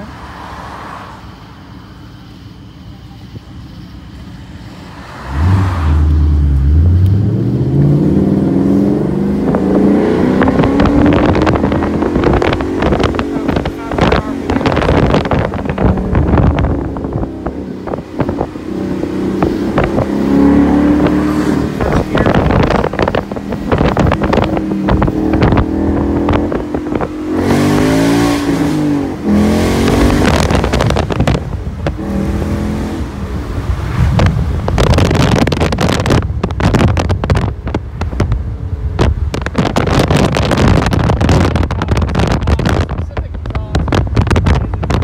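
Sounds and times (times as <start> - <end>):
car engine revving: 4.2 - 45.0.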